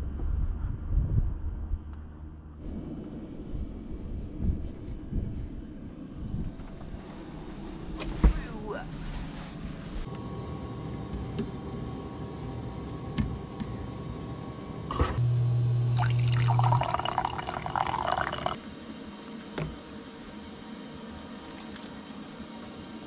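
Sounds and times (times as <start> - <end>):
brief low hum: 12.8 - 16.8
water pouring into mug: 16.0 - 18.7, 21.4 - 22.0.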